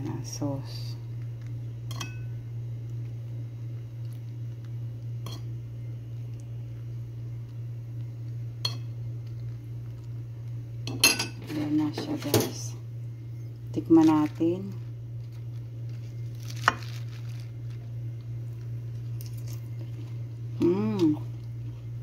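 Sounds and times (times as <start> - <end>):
steady low hum: 0.0 - 22.0
dishware clinking: 10.9 - 11.5.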